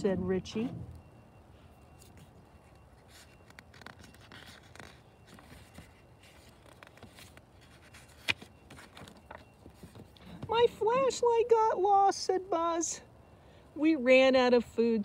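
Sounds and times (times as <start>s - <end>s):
paper page rustling: 2.0s - 10.2s.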